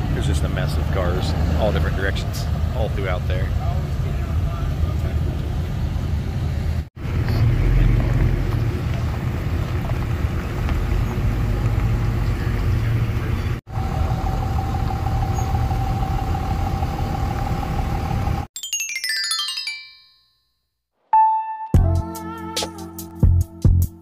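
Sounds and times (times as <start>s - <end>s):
truck engines rumbling: 0.0s - 18.5s.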